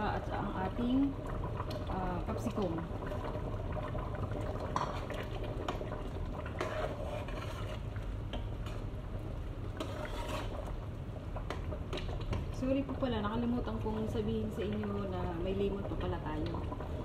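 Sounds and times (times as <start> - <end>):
metal ladle scraping a pot: 6.4 - 8.0, 9.7 - 10.8.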